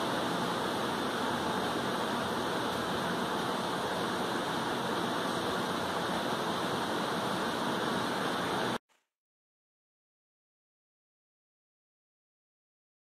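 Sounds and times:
heavy rain falling: 0.0 - 8.8.

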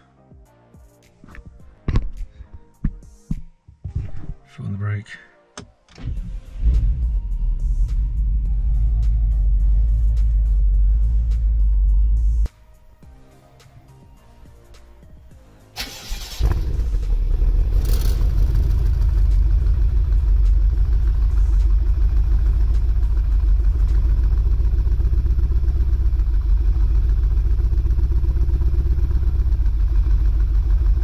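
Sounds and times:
rough engine idle rumble: 6.6 - 12.4, 16.1 - 31.0
engine cranking on starter: 15.8 - 19.8.

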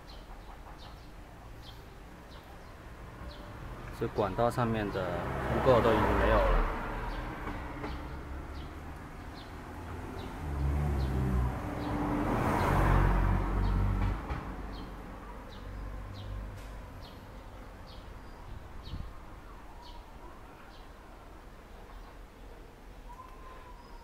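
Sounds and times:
vehicle passing rumble: 0.4 - 19.4.

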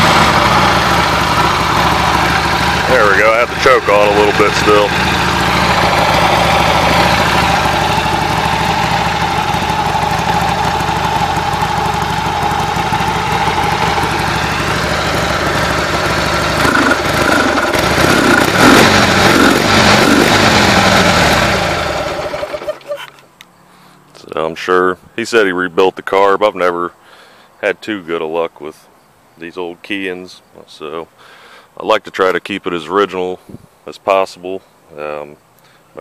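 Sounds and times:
motorcycle engine idling and revving: 0.0 - 23.3.

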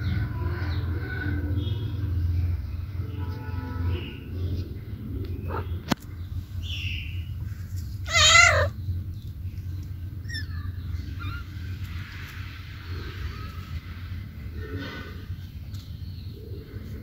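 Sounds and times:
low background hum: 0.0 - 17.0
cat meowing: 8.1 - 8.8, 10.3 - 11.6.

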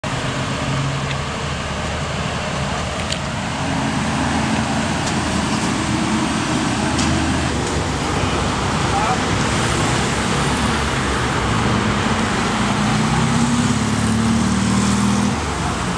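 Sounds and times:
cars passing: 0.0 - 15.9.

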